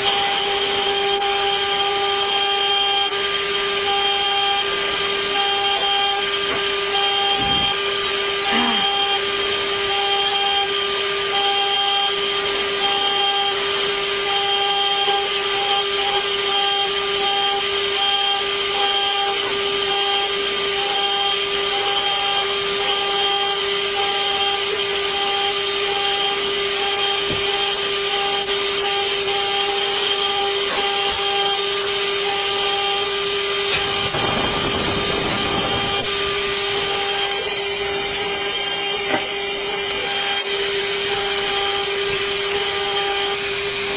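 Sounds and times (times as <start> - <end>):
engraving spindle whine: 0.0 - 43.9
pulsing high tone: 5.3 - 10.7, 25.2 - 43.8.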